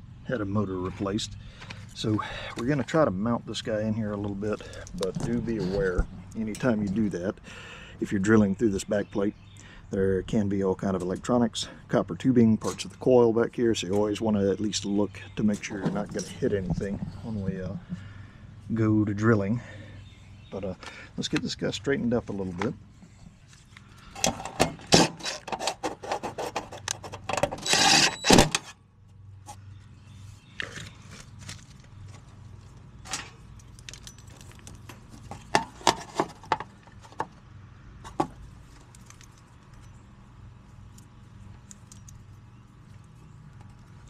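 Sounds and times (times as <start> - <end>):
steady low hum: 0.0 - 44.0
wires and metal parts rattling: 4.1 - 7.1, 14.8 - 18.0, 30.6 - 37.3, 38.0 - 44.0.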